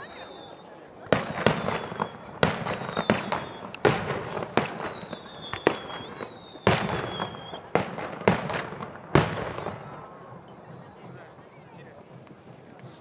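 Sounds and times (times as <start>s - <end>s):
falling whistles: 0.0s - 7.7s
fireworks bursting: 0.0s - 13.0s.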